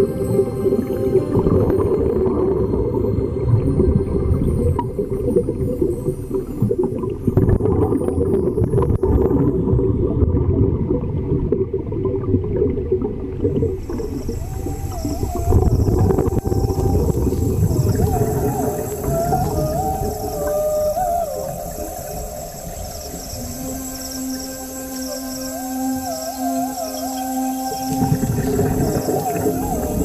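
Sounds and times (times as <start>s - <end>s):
wavering whale-like tone: 0.0s - 10.8s, 13.0s - 30.0s
muffled underwater rumbling: 0.0s - 30.0s.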